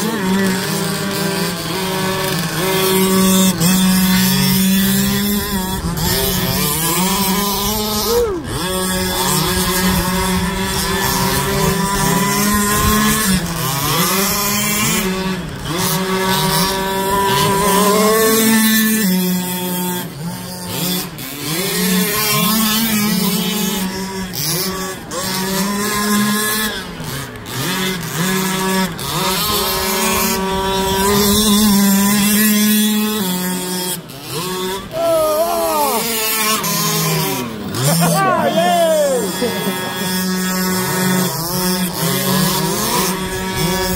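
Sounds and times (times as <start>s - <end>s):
two-stroke engine revving: 0.0s - 43.9s.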